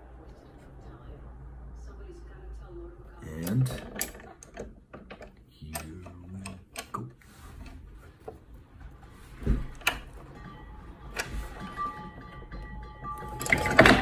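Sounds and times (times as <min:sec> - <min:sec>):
arbor press metal clicks and knocks: 0:03.7 - 0:08.4, 0:09.5 - 0:14.0.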